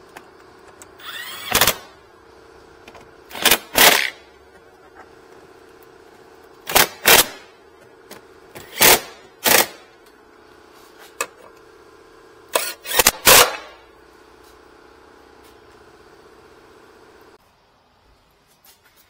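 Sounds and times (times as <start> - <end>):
power driver whirring: 0.0 - 10.4, 11.1 - 17.4.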